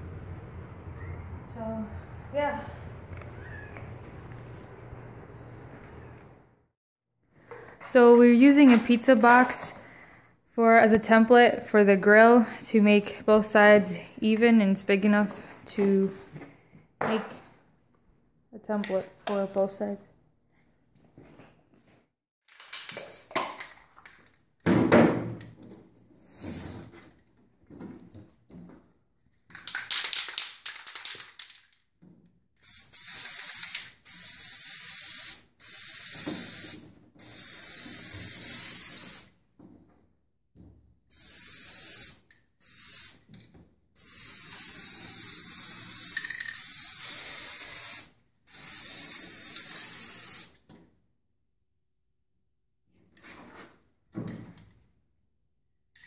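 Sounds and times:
spray can rattling: 29.5s - 31.8s, 32.6s - 39.3s, 41.1s - 43.2s, 44.0s - 50.5s
spray can hissing: 32.6s - 39.4s, 41.1s - 43.3s, 44.0s - 50.6s.

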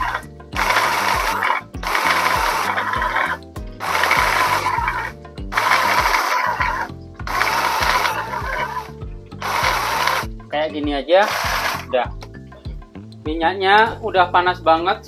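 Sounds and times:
electric food chopper pulsing: 0.0s - 10.4s, 11.2s - 12.0s.

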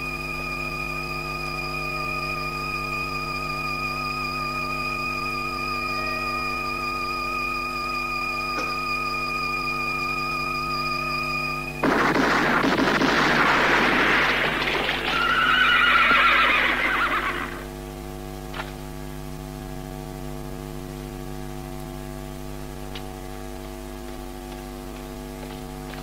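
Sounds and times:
steady hum: 0.0s - 26.0s
revolver gunshots echoing: 11.8s - 15.2s
horse whinnying: 14.7s - 17.7s.

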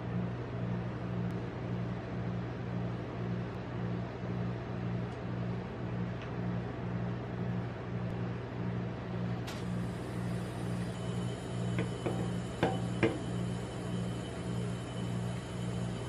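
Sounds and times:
pulsing mechanical hum: 0.0s - 16.0s.

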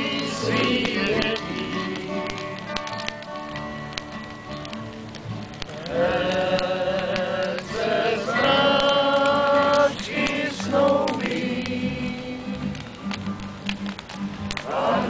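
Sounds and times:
group singing long notes: 0.0s - 2.9s, 5.7s - 13.1s, 14.4s - 15.0s.

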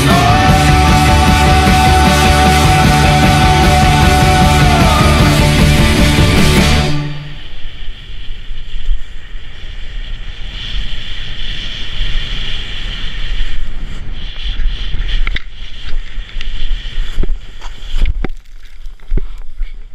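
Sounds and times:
snowboard sliding over snow: 0.0s - 19.9s
wind buffeting microphone: 5.6s - 19.9s.

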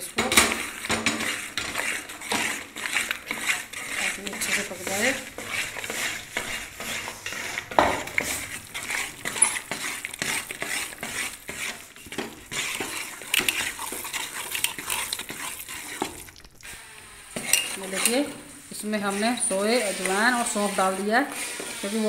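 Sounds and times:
metal spoon scraping a pot: 0.0s - 16.4s, 17.1s - 22.0s
spoon knocking pot: 4.2s - 8.4s.

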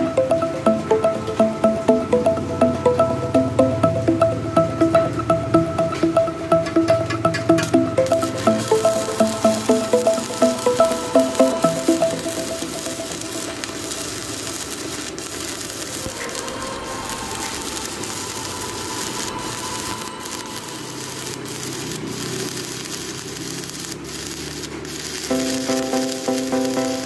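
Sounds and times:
music with steady beat: 0.0s - 14.6s, 25.3s - 27.0s
welding arc crackling: 0.0s - 27.0s.

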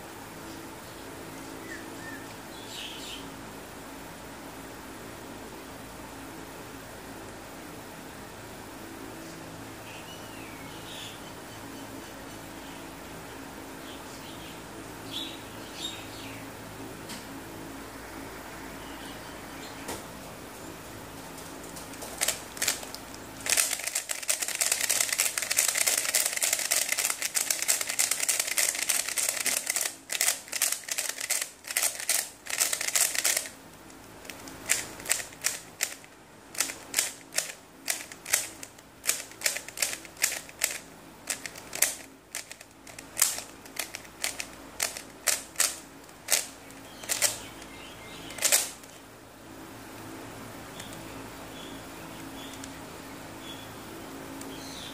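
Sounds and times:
plastic puzzle cube clicking: 22.1s - 33.5s, 34.2s - 47.4s, 48.3s - 48.8s.

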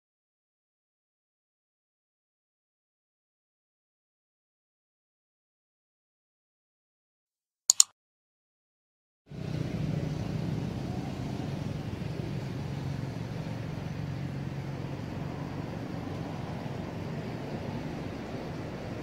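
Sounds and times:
outdoor background rumble: 9.3s - 19.0s.

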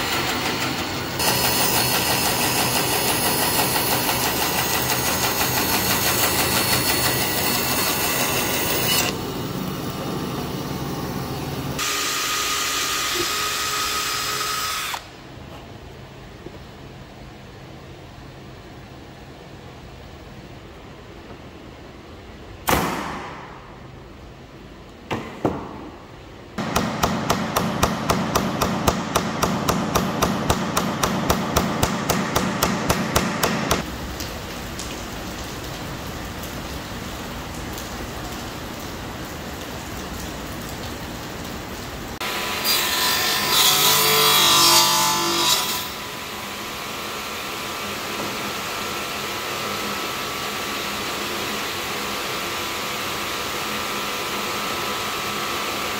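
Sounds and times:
machine whir with ringing tone: 0.0s - 12.1s
nail gun firing into wood: 22.6s - 23.5s, 26.6s - 33.8s.

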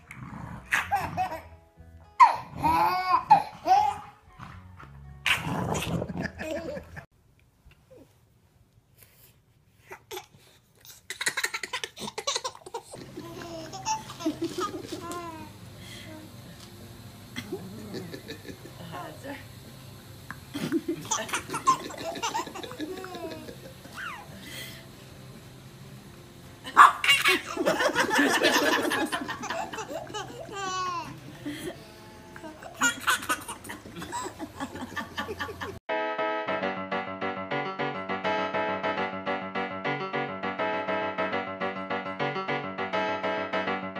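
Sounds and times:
baby laughing and babbling: 2.2s - 4.2s, 9.9s - 15.5s, 29.5s - 31.3s
person laughing: 5.9s - 7.1s, 17.4s - 18.8s, 20.6s - 24.3s, 32.4s - 35.8s.

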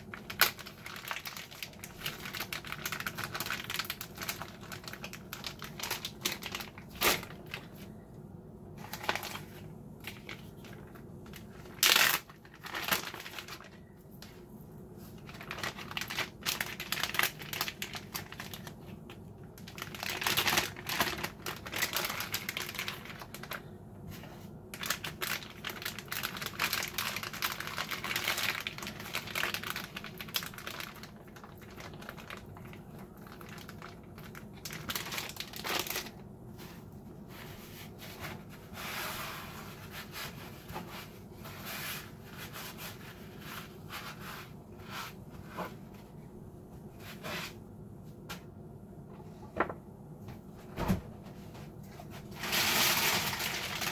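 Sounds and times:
plastic bags crinkling: 0.0s - 7.9s, 8.8s - 14.4s, 15.1s - 23.8s, 24.6s - 36.3s, 52.1s - 53.9s.

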